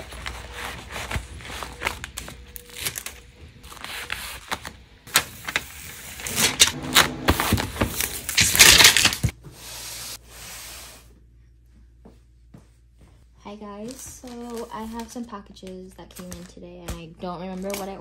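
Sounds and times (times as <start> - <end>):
plastic mailer crinkling: 0.0 - 6.7, 7.5 - 9.3.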